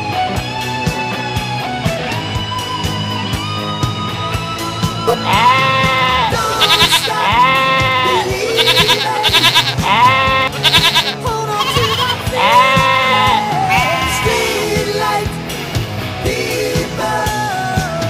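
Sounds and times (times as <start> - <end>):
rock music with drumbeat: 0.0 - 18.0
high wavering voice-like line: 5.1 - 15.2.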